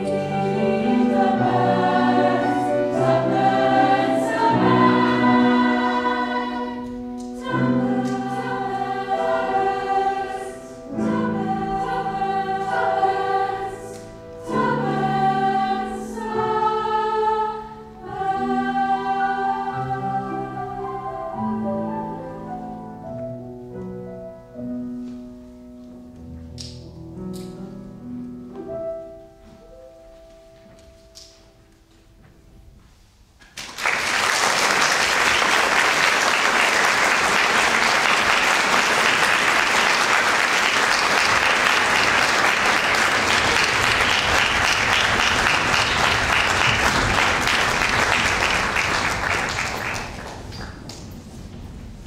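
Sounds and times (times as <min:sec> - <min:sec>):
girls' choir singing with piano: 0:00.0 - 0:23.5, 0:33.9 - 0:52.0
audience applause: 0:33.6 - 0:50.9.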